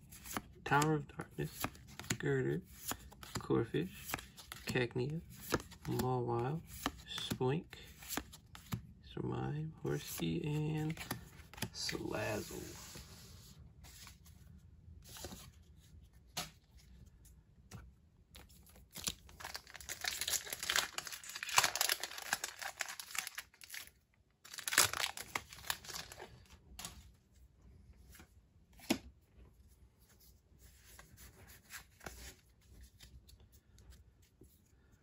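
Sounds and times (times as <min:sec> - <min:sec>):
foil wrapper tearing and crinkling: 0:19.3 - 0:23.9, 0:24.5 - 0:26.2.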